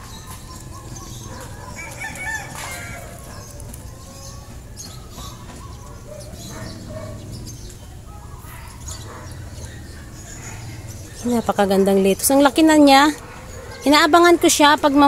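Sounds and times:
chickens clucking: 0.0 - 12.0.

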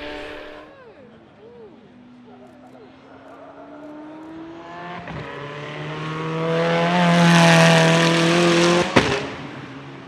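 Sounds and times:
sports car accelerating past: 3.4 - 9.9.

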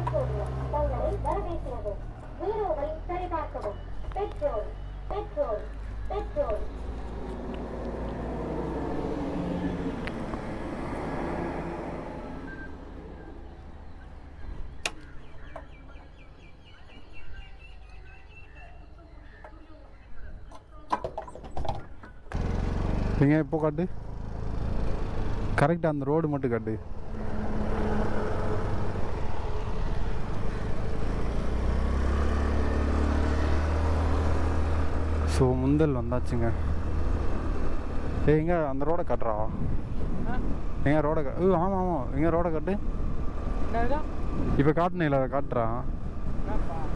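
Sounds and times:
vehicle engine running: 22.3 - 25.6
wind rushing over microphone: 39.1 - 44.9.

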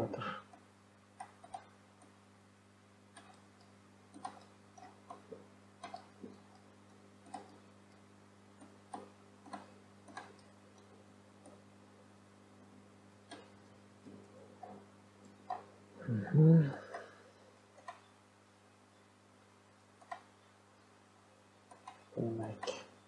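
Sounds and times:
low electrical hum: 0.0 - 23.0
computer mouse clicks: 1.2 - 2.2, 3.1 - 8.0, 8.6 - 11.6, 13.2 - 15.7, 17.8 - 18.1, 20.0 - 20.3, 21.7 - 22.9.

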